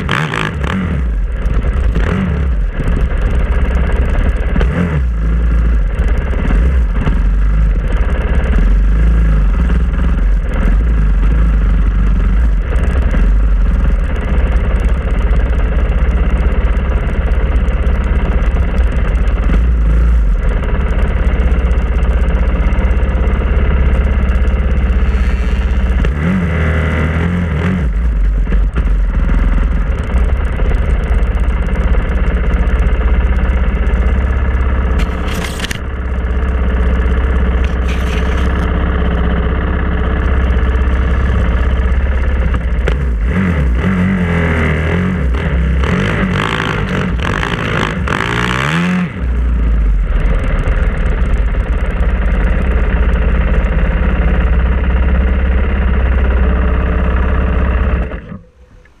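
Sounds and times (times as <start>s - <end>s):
dirt bike engine revving: 0.0s - 15.0s, 23.0s - 31.1s, 33.9s - 35.9s, 37.4s - 50.9s.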